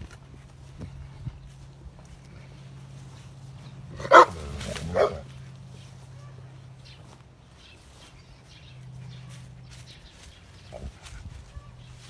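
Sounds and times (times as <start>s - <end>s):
dog barking: 4.0s - 5.3s.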